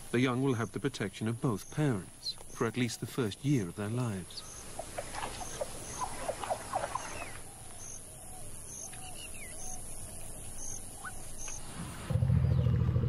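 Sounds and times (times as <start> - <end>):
high insect hiss: 0.0 - 12.1
birds chirping: 0.0 - 13.0
soft bird calls: 0.0 - 13.0.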